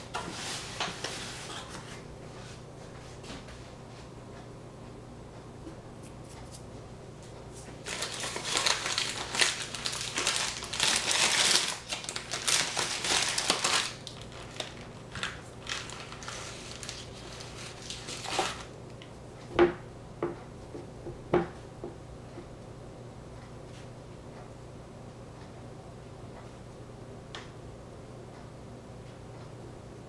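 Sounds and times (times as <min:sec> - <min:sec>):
crinkly wrapping rustling: 0:07.7 - 0:18.7.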